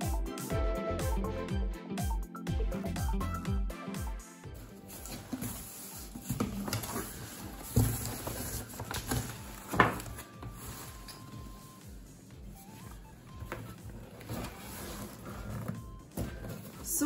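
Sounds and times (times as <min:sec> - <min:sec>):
cardboard box rustling: 0:04.6 - 0:11.8, 0:12.4 - 0:17.0
knocks of boxes handled: 0:04.9 - 0:10.9, 0:12.8 - 0:17.0.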